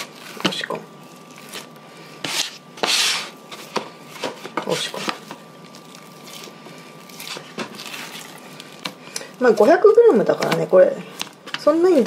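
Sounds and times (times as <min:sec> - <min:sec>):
dough squishing: 0:00.0 - 0:12.0
hands rubbing dough in plastic tub: 0:01.4 - 0:08.7.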